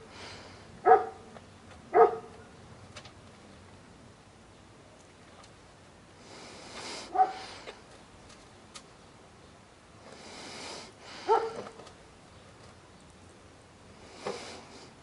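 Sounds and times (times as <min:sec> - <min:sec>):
dog barking: 0:00.8 - 0:01.3, 0:01.9 - 0:02.4, 0:07.1 - 0:07.5, 0:11.3 - 0:11.7.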